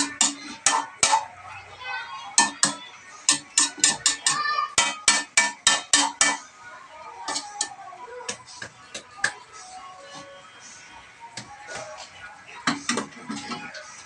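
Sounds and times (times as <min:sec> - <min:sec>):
metal spatula clanking on wok: 0:00.0 - 0:01.3, 0:02.4 - 0:06.4.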